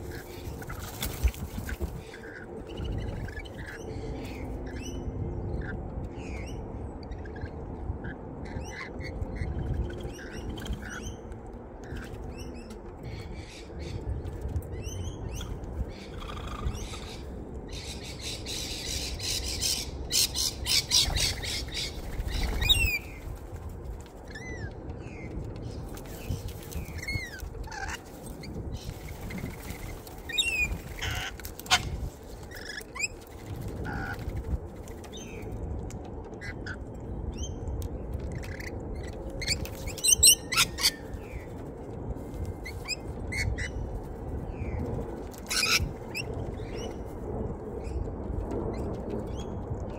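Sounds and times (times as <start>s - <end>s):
wing flaps: 0.1s - 2.0s
birds squawking: 30.3s - 33.2s.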